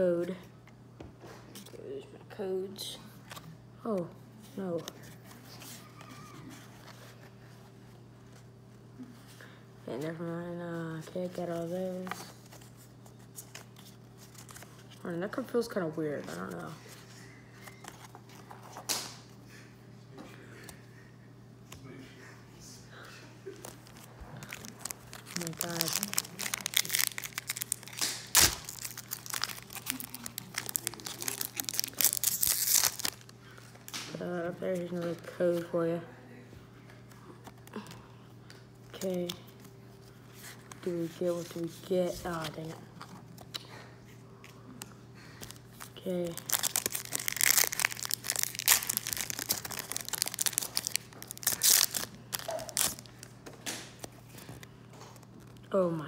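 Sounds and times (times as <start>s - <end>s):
foil wrapper crinkling: 23.6s - 34.0s, 45.3s - 53.4s
foil wrapper tearing: 23.7s - 33.3s, 45.4s - 53.3s.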